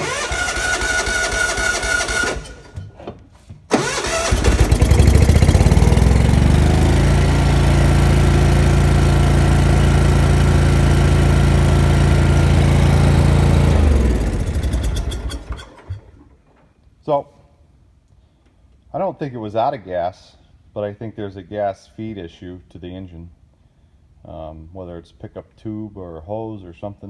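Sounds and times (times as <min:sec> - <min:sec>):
electric starter cranking: 0:00.0 - 0:02.9, 0:03.7 - 0:07.1, 0:10.5 - 0:16.4
gasoline engine running: 0:03.7 - 0:15.5.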